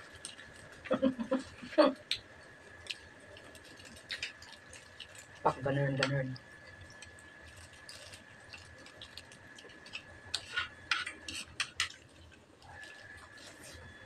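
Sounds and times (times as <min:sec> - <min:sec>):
faint high whine: 0:05.0 - 0:14.0.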